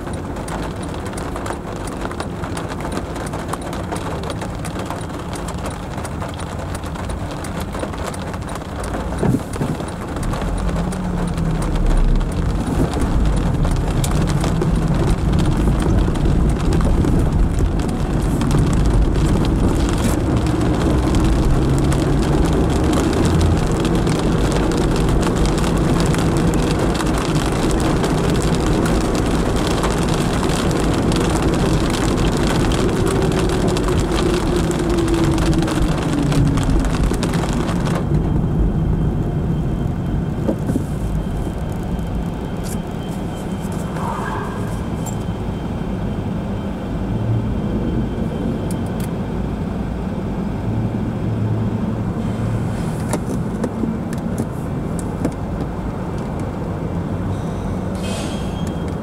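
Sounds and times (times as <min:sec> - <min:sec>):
low road rumble: 0:00.0 - 0:59.0
tyres hissing on wet road: 0:52.1 - 0:53.3, 0:57.3 - 0:58.9.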